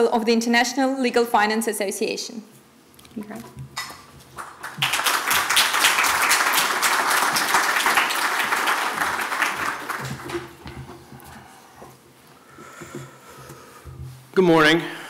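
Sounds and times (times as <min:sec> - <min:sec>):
audience applauding: 0:04.4 - 0:10.8.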